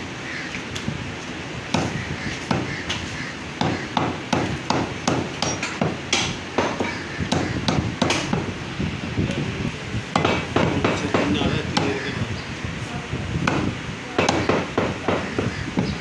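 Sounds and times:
cleaver chopping on wooden block: 1.7 - 2.8, 3.6 - 8.5, 10.2 - 12.0, 13.4 - 16.0.

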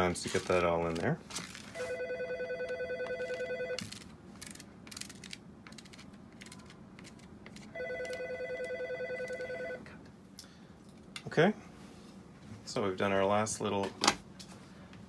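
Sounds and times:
warbling telephone ring: 1.8 - 3.9, 7.7 - 9.8.

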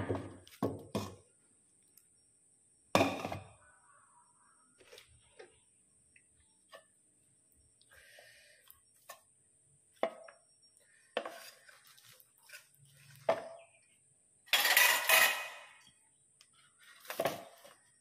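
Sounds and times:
kitchenware clinking and knocking: 0.0 - 1.2, 3.0 - 3.6, 14.6 - 15.7
kitchenware clattering: 14.5 - 15.8.

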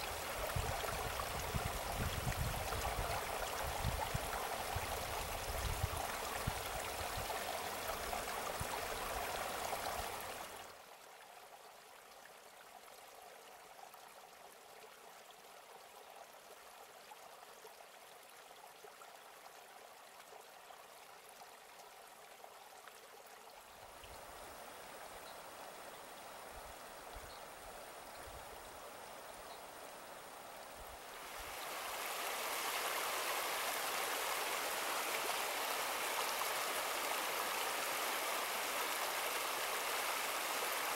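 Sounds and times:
water running and trickling: 0.0 - 10.7.

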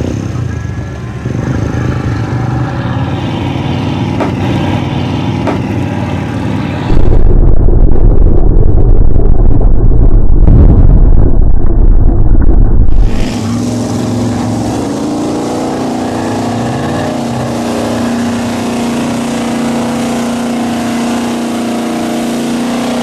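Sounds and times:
truck engine churning through mud: 13.0 - 23.0.

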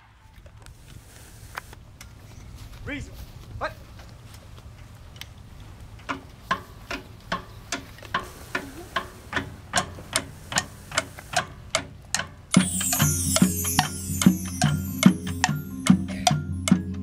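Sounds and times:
clock-like ticking: 6.0 - 17.0
marching band playing: 12.6 - 16.6
soft low held tone: 12.6 - 17.0.

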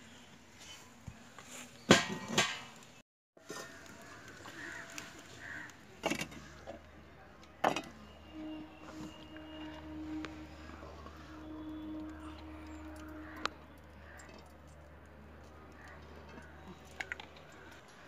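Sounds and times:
low steady hum: 6.1 - 18.0.

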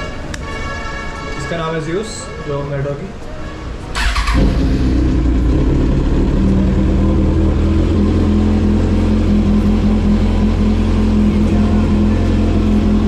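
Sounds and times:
motorcycle engine starting and idling: 4.0 - 13.0.

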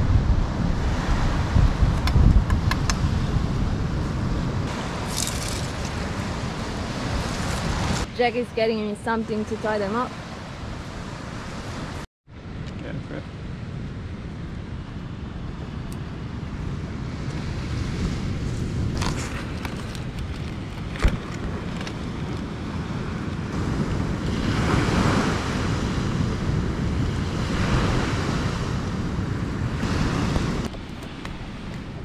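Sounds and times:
surf washing on beach: 0.0 - 8.2, 13.0 - 32.0
wind buffeting microphone: 0.0 - 32.0
leaf crackling being folded: 5.0 - 6.2, 19.0 - 22.4.

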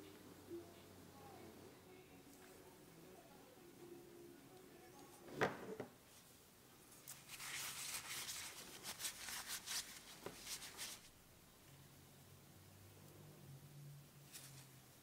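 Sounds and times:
paper towel crumpled by hand: 7.0 - 11.1.

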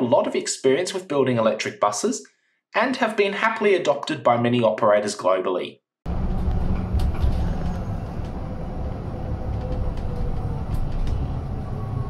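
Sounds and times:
bus interior rumble: 6.1 - 12.0.

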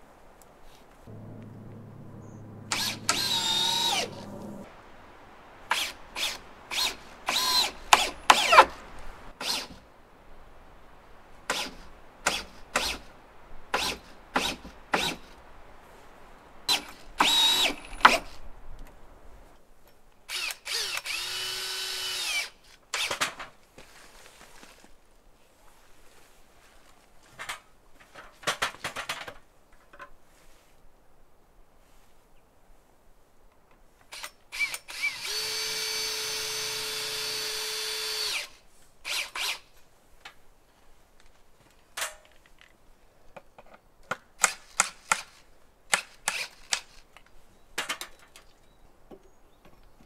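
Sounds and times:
cordless drill driving screws: 6.8 - 8.8, 16.7 - 18.4, 20.3 - 23.2, 34.1 - 39.6.

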